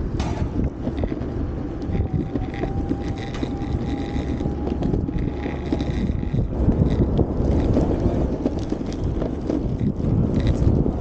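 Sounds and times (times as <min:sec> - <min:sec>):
wheels rumbling on asphalt: 0:00.0 - 0:11.0
wind buffeting microphone: 0:00.0 - 0:11.0
high electric motor whine: 0:00.6 - 0:09.0.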